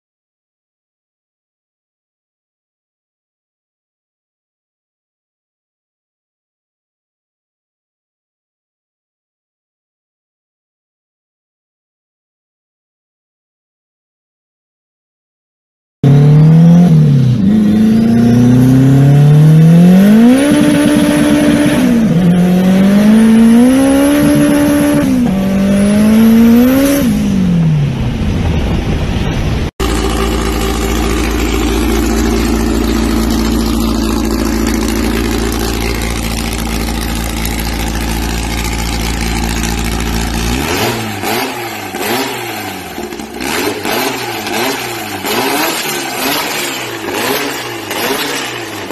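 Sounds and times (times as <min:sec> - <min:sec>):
car engine revving: 0:16.0 - 0:28.3, 0:29.8 - 0:48.9
engine blipped at throttle: 0:16.0 - 0:28.6, 0:29.8 - 0:48.9
engine drone with deep rumble: 0:16.0 - 0:48.9.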